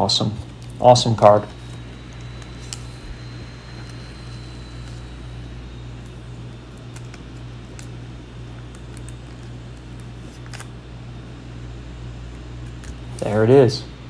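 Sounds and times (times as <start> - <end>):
low room hum: 0.0 - 14.0
trading cards clicking: 1.6 - 3.1, 6.0 - 10.8.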